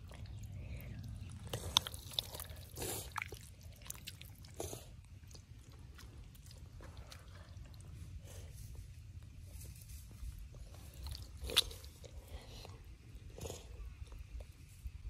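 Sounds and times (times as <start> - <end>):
squelching and splashing in mud: 0.0 - 8.2, 10.8 - 12.0
low steady rumble: 0.0 - 15.0.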